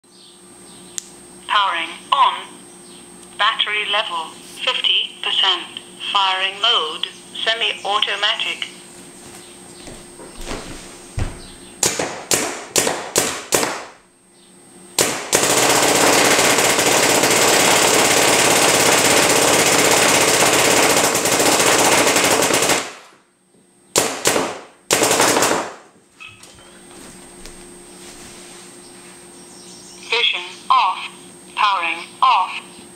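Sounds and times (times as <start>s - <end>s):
paintball marker firing: 11.8s - 14.0s, 15.0s - 23.0s, 24.0s - 25.8s.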